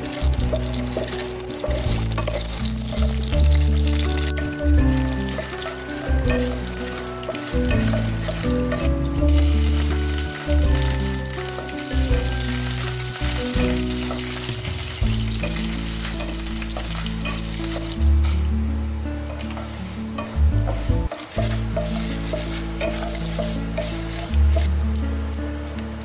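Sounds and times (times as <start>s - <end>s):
background music low notes: 0.0s - 26.0s
hot oil sizzling: 0.0s - 26.0s
spatula scraping a pan: 0.5s - 3.3s, 5.2s - 10.4s, 11.5s - 18.4s, 19.3s - 24.7s.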